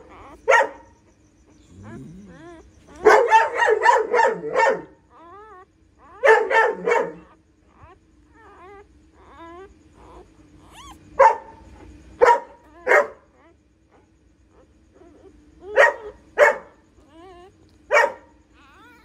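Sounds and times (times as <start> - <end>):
dog barking: 0.0 - 1.0, 1.6 - 5.0, 6.2 - 7.4, 10.8 - 13.3, 15.7 - 16.8, 17.9 - 19.0
newborn puppy squeaking: 0.0 - 1.0, 7.2 - 11.0, 18.6 - 19.0.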